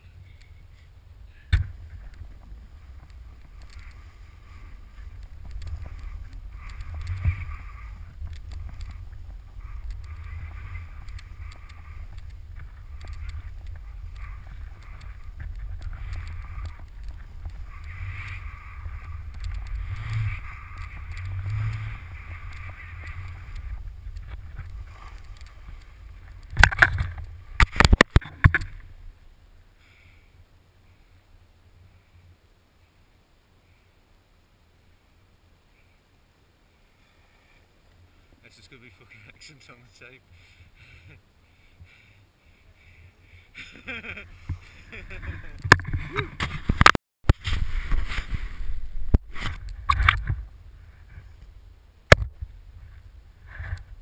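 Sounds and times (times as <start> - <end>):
low wind rumble: 0.0 - 54.0
skis hissing through powder snow: 2.0 - 26.4, 47.4 - 49.6.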